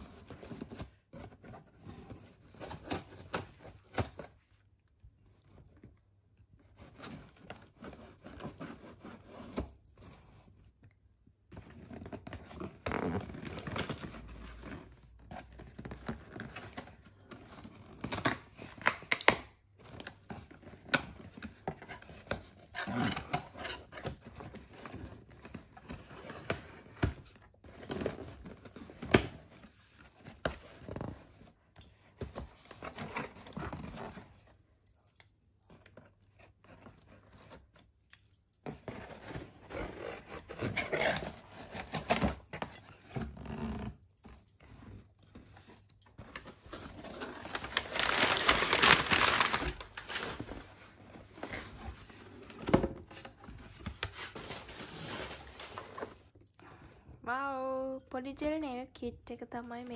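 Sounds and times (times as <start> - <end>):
packing tape being slit and ripped: 46.4 - 50.6.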